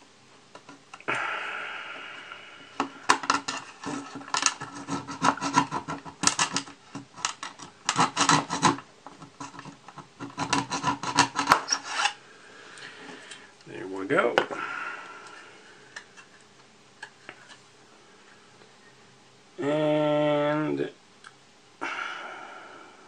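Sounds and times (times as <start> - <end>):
hand tool rasping on plastic: 3.1 - 12.2.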